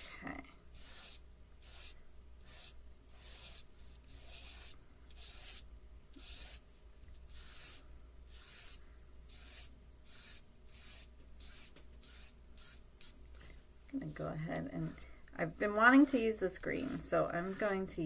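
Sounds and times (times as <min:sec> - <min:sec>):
chalk pastel rubbing on paper: 0:00.8 - 0:05.6, 0:06.2 - 0:06.6, 0:07.3 - 0:13.2.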